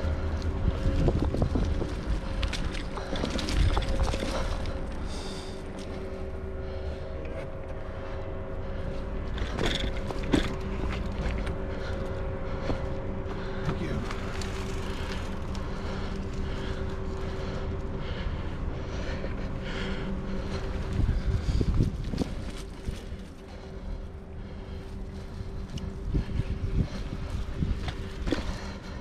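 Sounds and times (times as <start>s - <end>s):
bike tyres rumbling on dirt: 0.0s - 5.9s, 9.3s - 29.0s
constant low hum: 0.0s - 29.0s
bike knocks and rattles: 9.3s - 11.5s.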